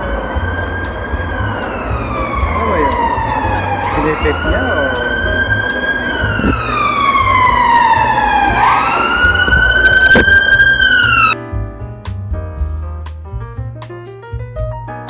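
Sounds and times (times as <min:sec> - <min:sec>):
emergency vehicle siren wailing: 0:00.0 - 0:11.4.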